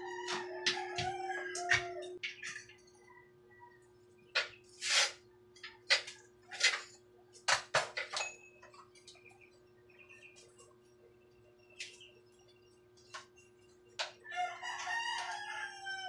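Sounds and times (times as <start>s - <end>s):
tools clattering on concrete floor: 7.5s - 8.9s.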